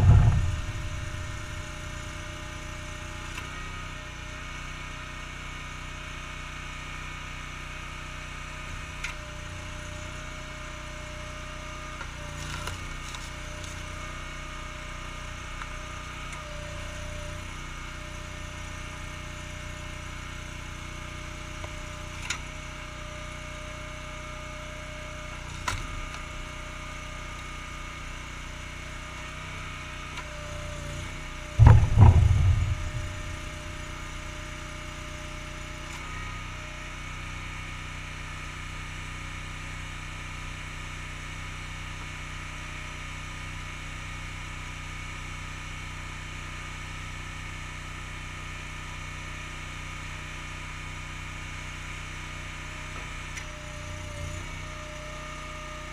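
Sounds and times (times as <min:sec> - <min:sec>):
wood knocking clatter: 0:00.0 - 0:01.8, 0:31.6 - 0:34.0
engine running steadily: 0:00.0 - 0:55.9.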